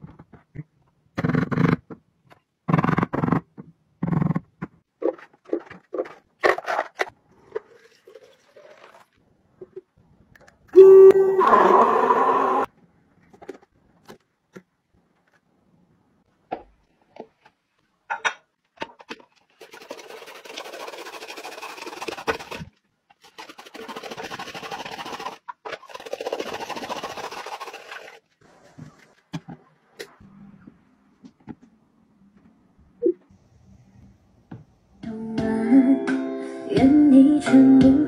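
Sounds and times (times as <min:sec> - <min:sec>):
drum grater shredding carrots: 0:19.6 - 0:28.1.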